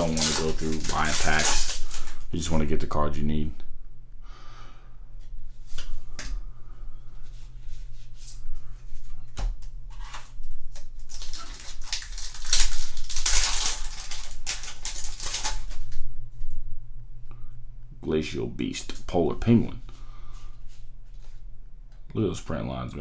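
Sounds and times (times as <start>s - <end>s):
trading cards clicking and rustling: 0.0s - 2.2s, 9.6s - 16.0s
foil wrapper crinkling: 0.0s - 2.5s, 9.9s - 16.0s.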